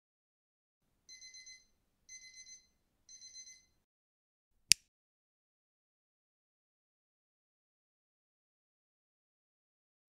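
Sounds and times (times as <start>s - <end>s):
alarm clock beeping: 1.1s - 3.8s.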